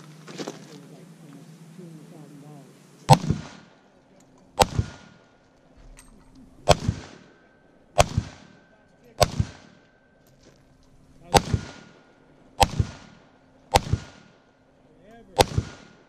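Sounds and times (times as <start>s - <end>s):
rifle shots with echo: 3.1s - 3.9s, 4.6s - 5.4s, 6.6s - 10.2s, 11.1s - 14.6s, 15.2s - 16.0s.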